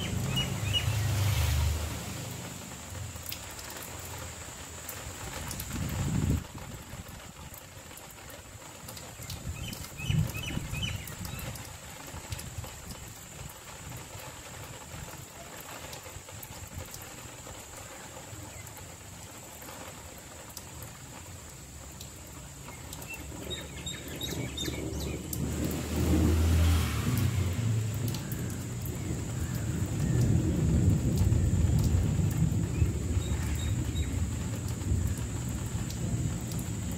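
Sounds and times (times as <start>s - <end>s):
bird chirps: 0.0s - 1.2s, 9.6s - 11.5s, 23.0s - 25.2s
distant thunder rumble: 0.0s - 3.2s, 23.1s - 36.9s
light rain: 0.0s - 36.9s.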